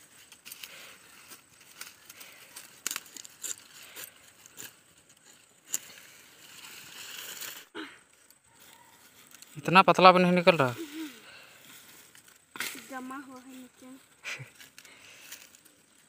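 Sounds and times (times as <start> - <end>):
rustling leaves and stems: 0.0 - 16.0
sharp snaps of stems: 1.7 - 3.6, 12.2 - 13.0.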